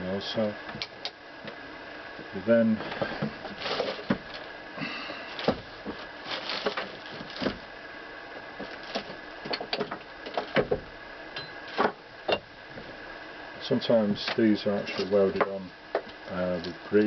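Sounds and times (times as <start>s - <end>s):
light rustling: 2.8s - 4.5s.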